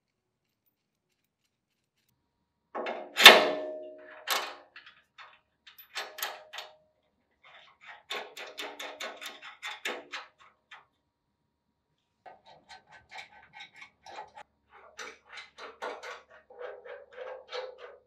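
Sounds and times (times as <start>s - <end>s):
metal nuts and washers clinking: 2.8s - 6.7s.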